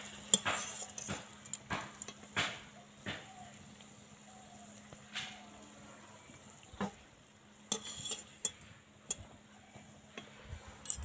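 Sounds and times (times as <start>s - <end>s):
metal skimmer scraping pan: 0.0s - 2.7s, 7.5s - 9.3s
food frying in hot oil: 0.0s - 10.8s.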